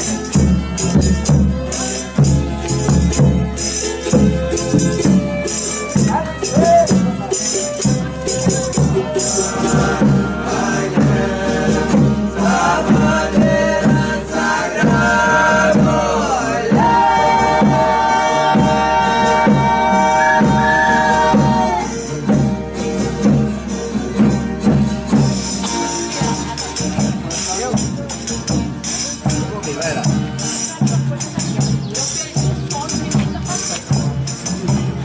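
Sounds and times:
rhythmic guitar strumming: 0.0s - 35.0s
voices singing in harmony: 8.8s - 22.4s.

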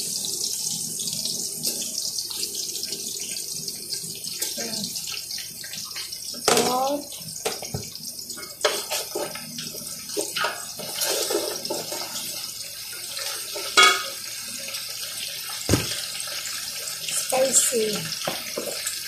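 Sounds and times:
thump: 15.7s - 16.0s.

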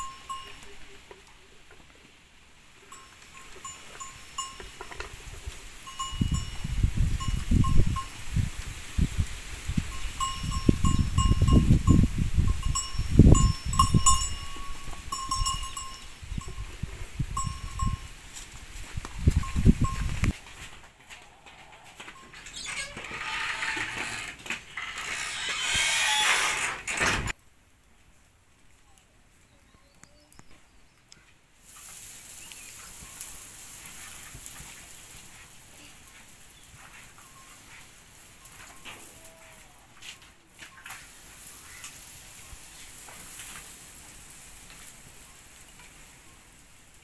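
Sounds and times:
cattle bells clinking: 0.0s - 1.2s, 2.8s - 8.4s, 9.7s - 18.2s, 19.2s - 20.4s, 31.6s - 39.8s
wood fire hissing and crackling: 0.0s - 21.0s, 30.3s - 47.0s
faint chirps: 28.8s - 39.8s.

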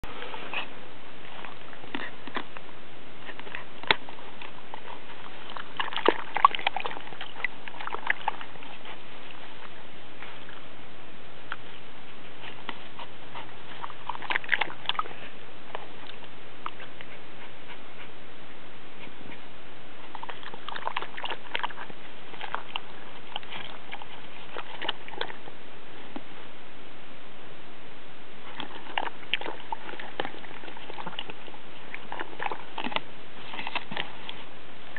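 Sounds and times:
puppy splashing in water dish: 3.3s - 10.6s, 12.4s - 17.1s, 20.0s - 25.5s, 28.4s - 34.5s.

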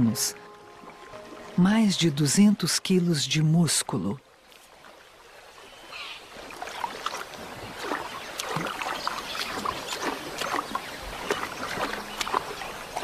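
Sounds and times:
muddy water splashing: 0.0s - 13.0s.

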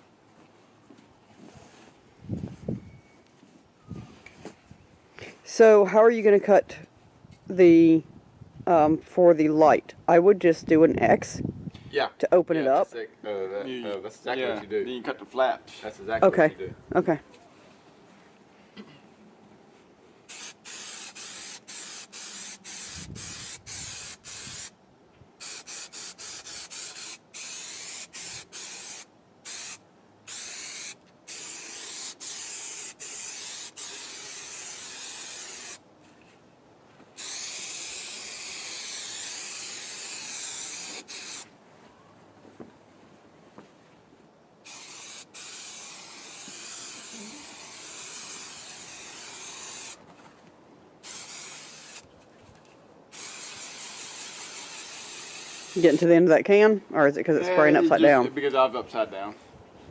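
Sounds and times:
aerosol can hissing: 20.3s - 24.7s, 25.4s - 35.8s, 37.2s - 41.4s, 44.7s - 50.0s, 51.0s - 52.0s, 53.1s - 56.1s.

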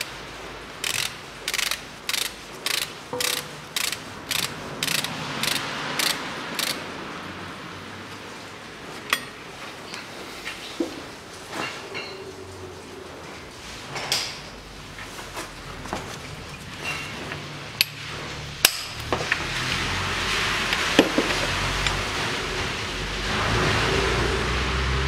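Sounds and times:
steady background noise: 0.0s - 25.0s
hand tools clicking: 0.8s - 6.8s.

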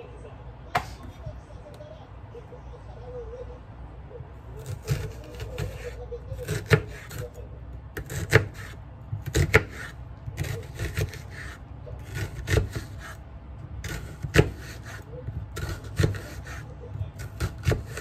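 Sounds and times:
knife rasping through onion: 4.6s - 7.4s, 8.0s - 13.2s, 13.8s - 18.0s.

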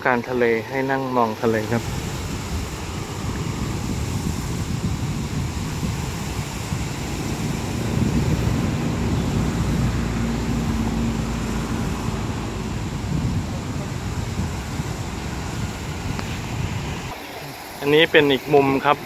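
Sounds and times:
waves breaking on rocks: 0.0s - 19.0s
wind buffeting microphone: 0.0s - 19.0s.

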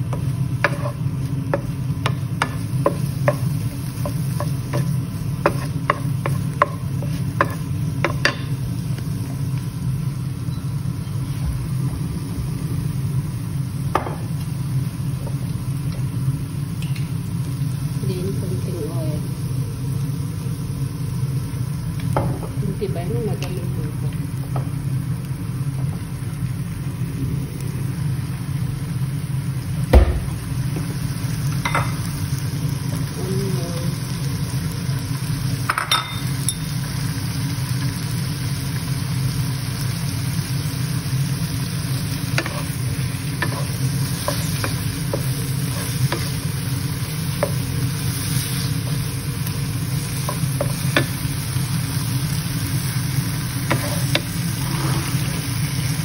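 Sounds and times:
chicken sizzling in oil: 0.0s - 56.0s
steady low hum: 0.0s - 56.0s
sharp loud knock: 29.9s - 30.3s
wooden spatula scraping pan: 53.7s - 55.4s.

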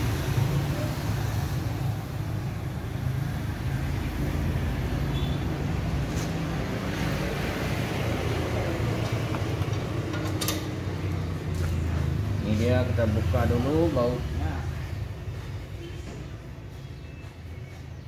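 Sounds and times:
spanner clicking on engine: 9.0s - 11.2s.

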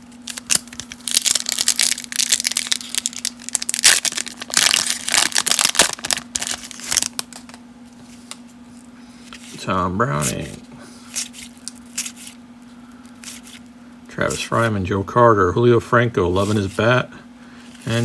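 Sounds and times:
foil wrapper crinkling and tearing: 0.1s - 7.6s, 11.1s - 13.7s.

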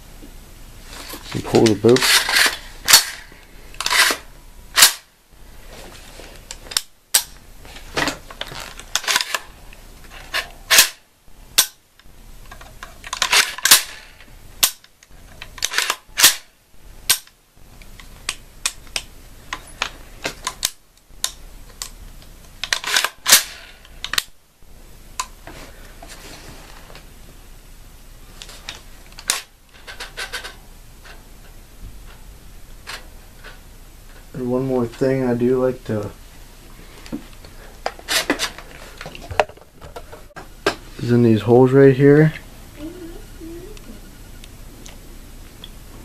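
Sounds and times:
rifle charging handle and bolt clicks: 8.9s - 9.5s, 10.3s - 11.0s, 14.6s - 16.5s, 22.6s - 24.3s.

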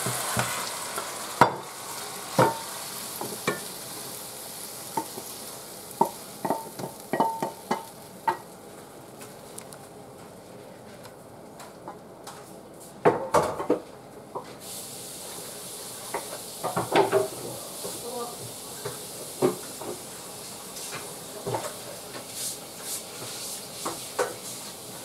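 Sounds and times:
meat sizzling in a pan: 0.0s - 8.6s, 14.6s - 25.0s
utensil knocking against pan: 6.0s - 8.4s.

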